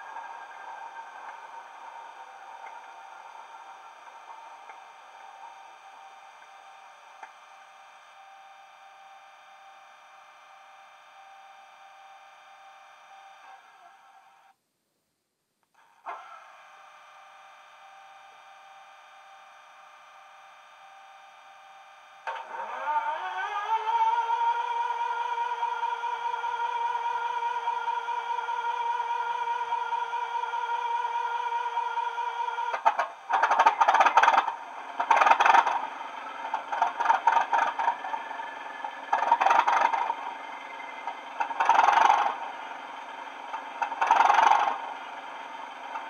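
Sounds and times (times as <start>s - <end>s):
model train engine sound hum: 0.0s - 14.5s, 15.8s - 46.0s
turbocharger whistle: 22.5s - 32.7s
model train diesel idling sound: 24.0s - 46.0s.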